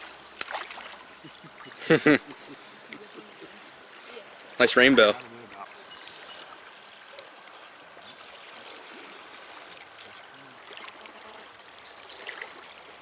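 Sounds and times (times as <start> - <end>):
fish splashing at surface: 0.0 - 1.8
creek water flowing: 0.0 - 13.0.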